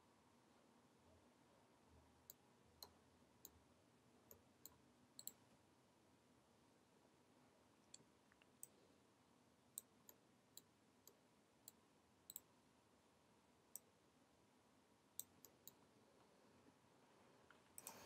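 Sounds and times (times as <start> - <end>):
mouse and keyboard clicks: 17.8 - 18.0.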